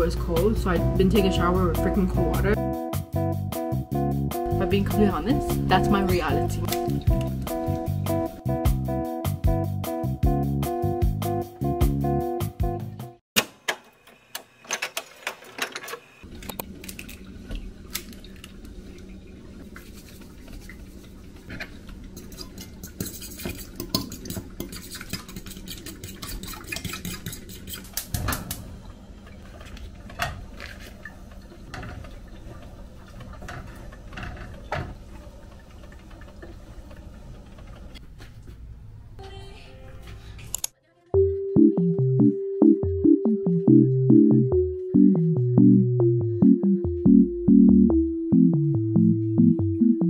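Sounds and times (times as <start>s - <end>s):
fork scraping ceramic bowl: 22.2s - 28.0s.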